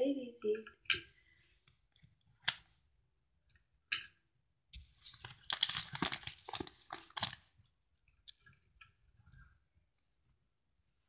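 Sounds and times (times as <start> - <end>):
paper crinkling and rustling: 4.8 - 7.5.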